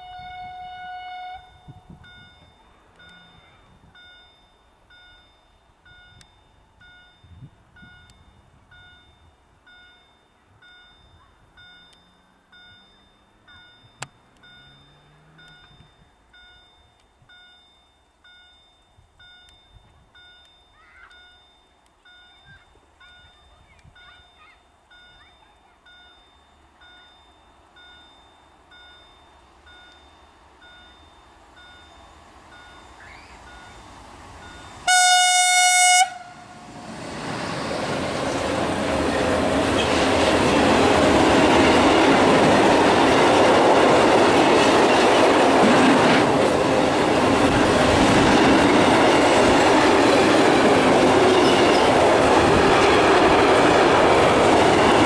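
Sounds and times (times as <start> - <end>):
locomotive horn: 0.0 - 2.0, 34.8 - 36.6
train wheels rumbling on rails: 36.0 - 55.0.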